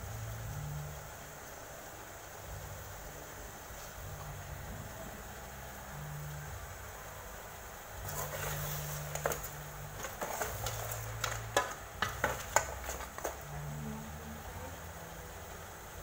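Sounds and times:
steady low hum: 0.0 - 16.0
metal ladle scraping a pot: 8.0 - 13.4.

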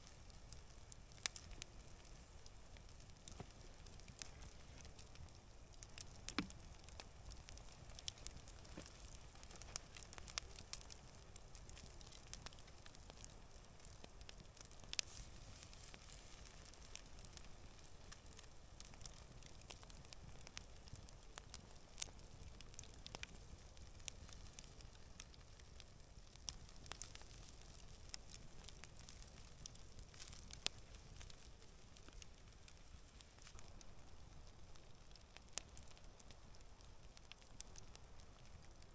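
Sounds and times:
campfire crackling and popping: 0.0 - 38.9
meat sizzling on a grill: 15.0 - 18.3.

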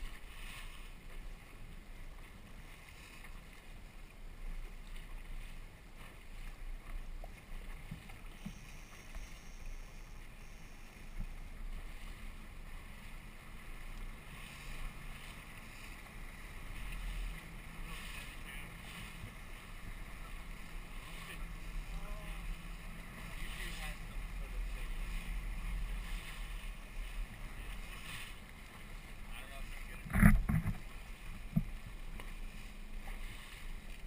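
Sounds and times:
outboard motor running: 0.0 - 34.0
water rushing past hull: 0.0 - 34.0.

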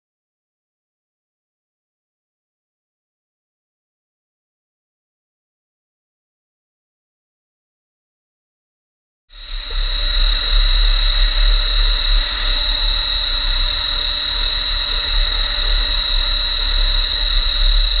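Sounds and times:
plasma torch cutting metal: 9.4 - 18.0.

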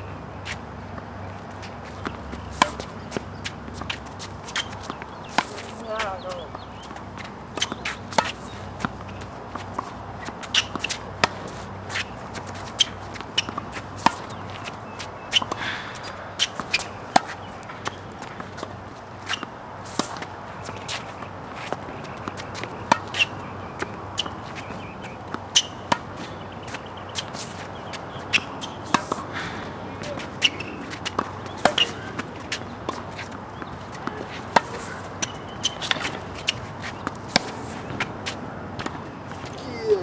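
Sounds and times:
tennis ball bouncing on court: 0.4 - 40.0
tennis racket hitting ball: 1.6 - 40.0.

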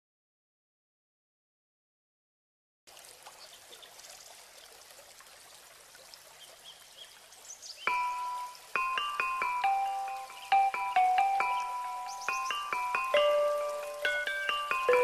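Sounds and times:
trickling stream: 2.9 - 15.0
glockenspiel-like chime notes: 7.9 - 15.0.

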